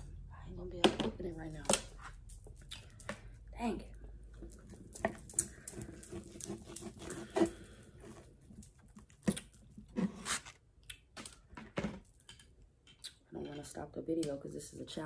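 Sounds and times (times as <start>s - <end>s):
knife and fork scraping board: 6.0s - 8.2s
knife sawing through steak: 6.1s - 7.7s.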